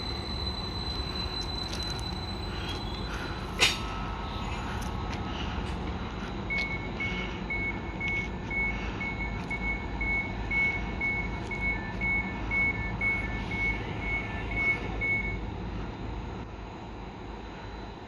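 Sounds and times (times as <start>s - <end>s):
high electronic warning beeps: 0.0s - 4.8s, 6.2s - 15.5s
steady low rumble: 0.0s - 18.0s.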